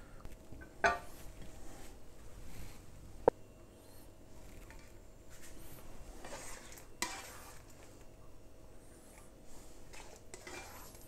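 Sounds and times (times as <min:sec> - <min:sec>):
spatula scraping metal wok: 0:06.2 - 0:07.8, 0:09.6 - 0:11.0.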